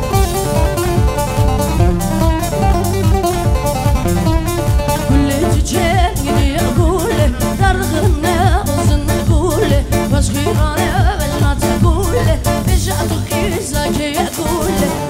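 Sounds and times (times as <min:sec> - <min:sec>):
fast drum beat: 0:00.0 - 0:15.0
person singing ornamented vocals: 0:05.1 - 0:15.0.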